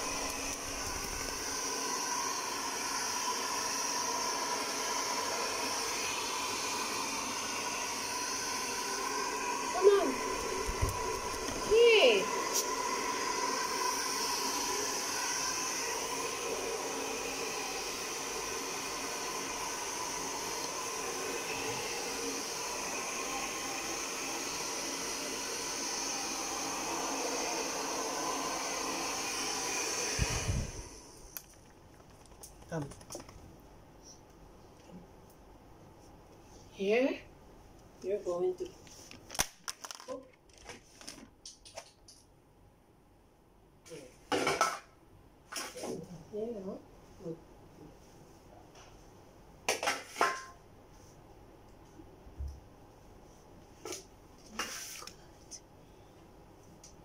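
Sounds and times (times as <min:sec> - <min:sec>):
hair dryer blowing: 0:00.0 - 0:31.4.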